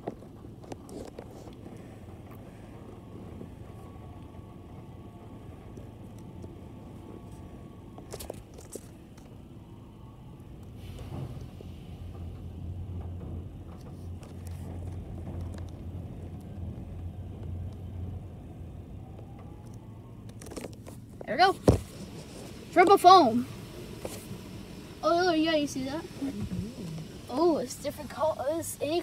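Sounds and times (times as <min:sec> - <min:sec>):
car wash brush humming: 0:21.3 - 0:29.0.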